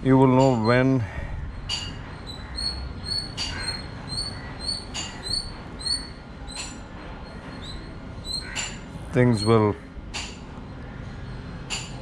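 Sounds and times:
high thin bird chirps: 0:01.6 - 0:09.6.

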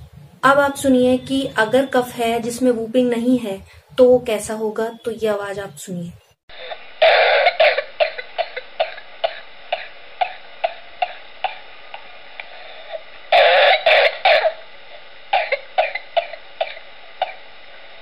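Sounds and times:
person coughing: 0:06.5 - 0:11.6, 0:12.9 - 0:14.6, 0:15.4 - 0:17.4.

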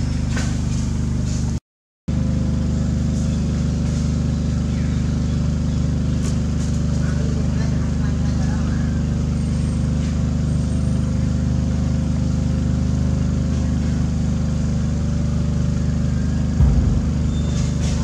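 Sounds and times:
engine idling: 0:00.0 - 0:18.0
low thump: 0:16.6 - 0:18.0.

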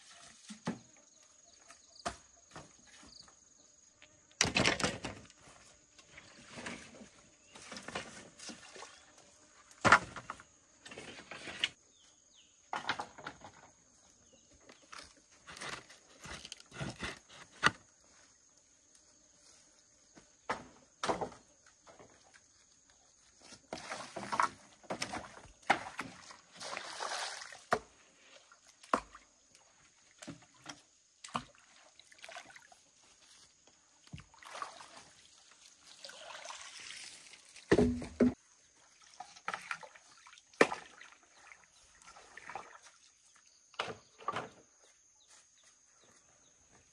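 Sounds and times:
water sloshing in a pond: 0:04.4 - 0:11.9, 0:20.6 - 0:44.8
knocks and rustling: 0:37.7 - 0:38.4.

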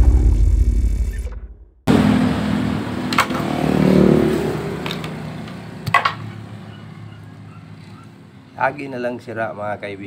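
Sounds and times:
vehicle engine passing by: 0:01.9 - 0:08.3.

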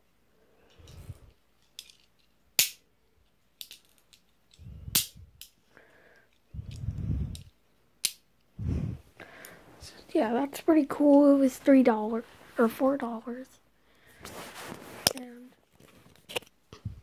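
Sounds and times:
gun handling rustle: 0:00.8 - 0:02.4
cap gun cracks: 0:02.6 - 0:02.8, 0:04.9 - 0:05.5, 0:08.0 - 0:08.2.

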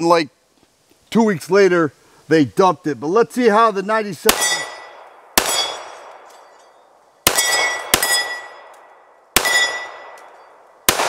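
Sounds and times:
pistol shots: 0:04.3 - 0:06.3, 0:07.2 - 0:11.0
steel plate target ringing: 0:04.3 - 0:10.7.

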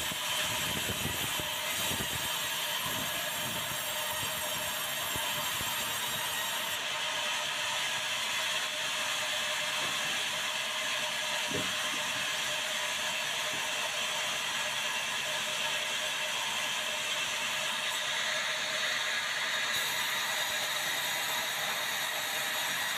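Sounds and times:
band saw humming: 0:11.2 - 0:22.9.

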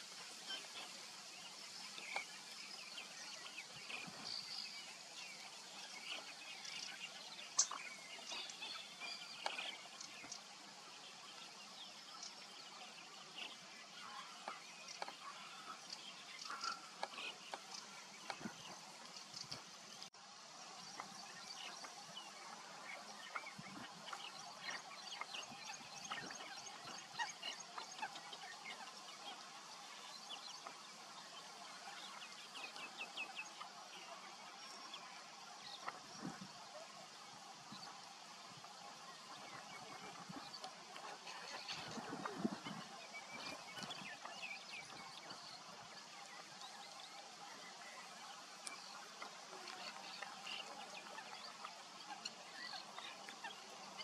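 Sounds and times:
small birds twittering: 0:00.0 - 0:54.0
steady outdoor hiss: 0:00.0 - 0:54.0
faint bird chirps: 0:00.2 - 0:20.1.

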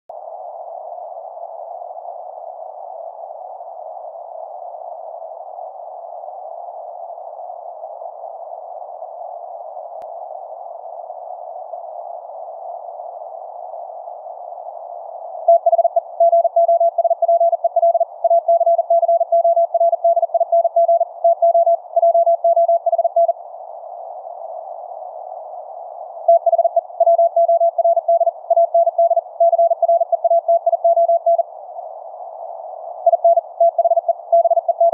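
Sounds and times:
morse code beeps: 0:15.5 - 0:23.3, 0:26.3 - 0:31.4, 0:33.1 - 0:34.9.

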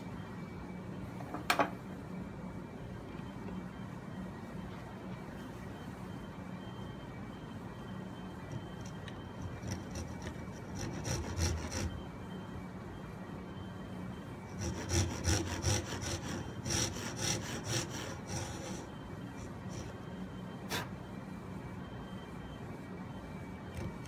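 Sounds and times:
pull saw cutting wood: 0:14.6 - 0:18.9.

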